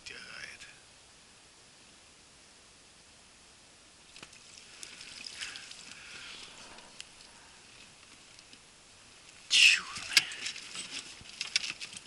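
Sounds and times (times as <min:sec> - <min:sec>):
water splashing: 0:04.1 - 0:06.8.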